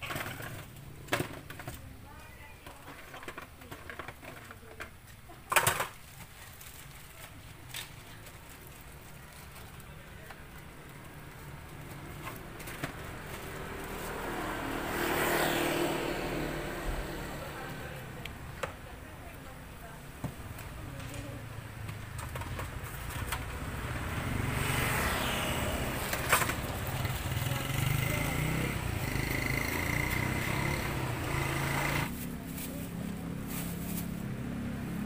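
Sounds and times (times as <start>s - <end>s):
motor vehicle passing: 10.6s - 19.0s, 21.0s - 35.0s.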